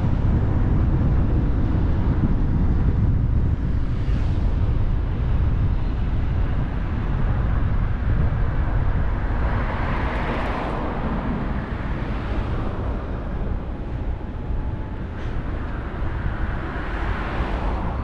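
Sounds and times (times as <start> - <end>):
car road and wind rumble: 0.0 - 18.0.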